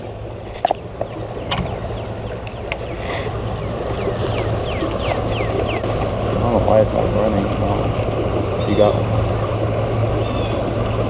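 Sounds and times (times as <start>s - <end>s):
engine drone: 0.0s - 11.0s
bird chirps: 0.7s - 5.9s.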